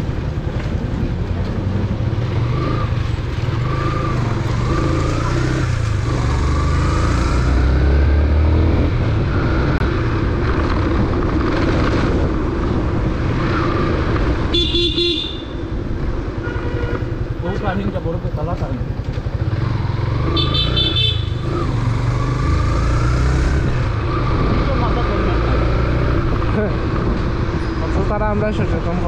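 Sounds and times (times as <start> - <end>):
wind and road noise: 0.0 - 29.0
vehicle horn: 14.5 - 15.6, 16.4 - 17.2, 20.3 - 21.4
motorcycle engine running: 14.6 - 22.4.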